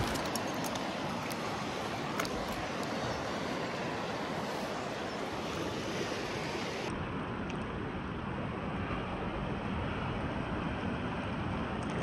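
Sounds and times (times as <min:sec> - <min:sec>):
river water rushing: 0:00.0 - 0:07.3.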